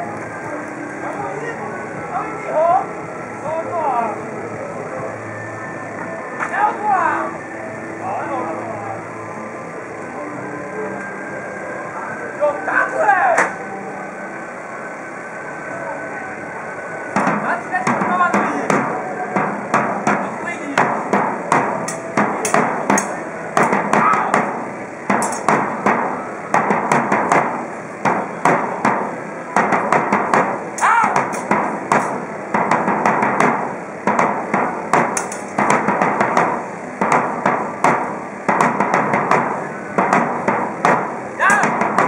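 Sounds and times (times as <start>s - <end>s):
sharp percussive strikes: 17.2s - 42.0s.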